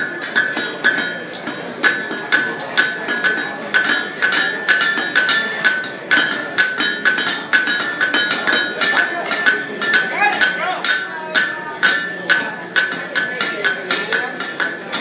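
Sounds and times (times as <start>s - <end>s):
anvil ringing: 0.0s - 15.0s
hammer striking steel on anvil: 0.0s - 15.0s.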